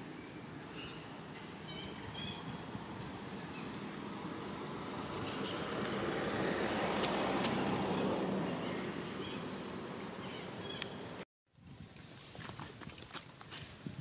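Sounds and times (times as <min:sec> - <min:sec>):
distant vehicle passing: 0:02.6 - 0:11.2.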